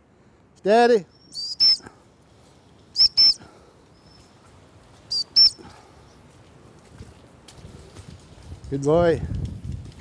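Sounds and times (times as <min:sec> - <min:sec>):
dog whistle pips: 0:01.3 - 0:01.8, 0:03.0 - 0:03.4, 0:05.1 - 0:05.6.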